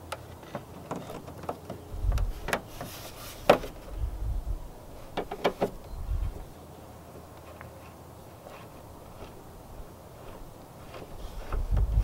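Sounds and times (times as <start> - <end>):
low rumbles: 1.9 - 2.5, 3.7 - 6.6.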